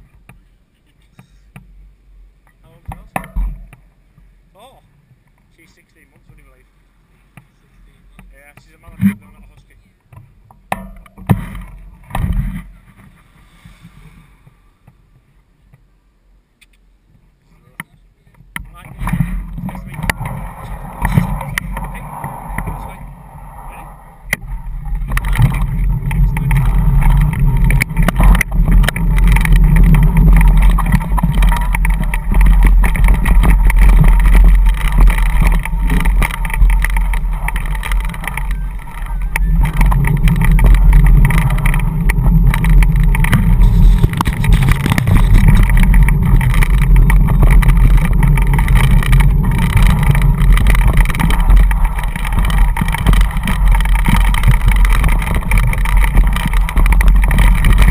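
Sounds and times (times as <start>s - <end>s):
tyres rumbling: 18.5s - 57.9s
wind buffeting microphone: 18.6s - 57.9s.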